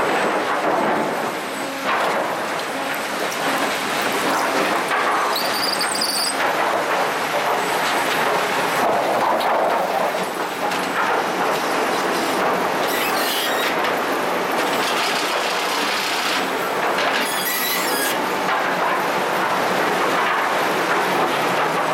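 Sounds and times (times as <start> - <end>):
chain conveyor clatter: 3.3 - 21.9
high metal squeals: 5.3 - 6.4, 12.9 - 13.7, 17.2 - 18.2.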